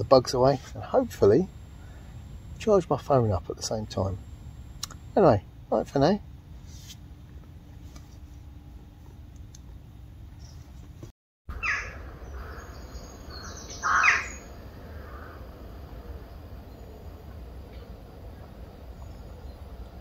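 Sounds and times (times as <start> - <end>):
bird harsh calls: 11.5 - 15.4.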